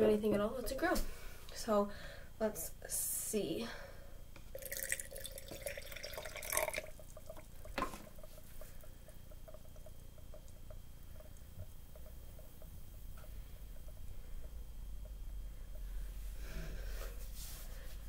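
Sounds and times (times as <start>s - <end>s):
liquid splashing into jar: 4.6s - 8.2s.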